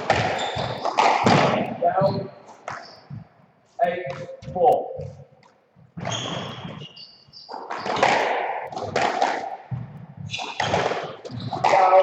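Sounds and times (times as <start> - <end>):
racket striking squash ball: 0.0 - 3.3, 4.0 - 12.0
ball smacking walls with echo: 0.0 - 12.0
shoes squeaking on court: 0.0 - 12.0.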